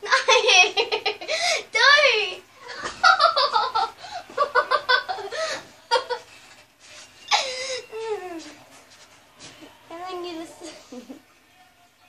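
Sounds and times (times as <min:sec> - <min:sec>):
children giggling and laughing: 0:02.7 - 0:06.4.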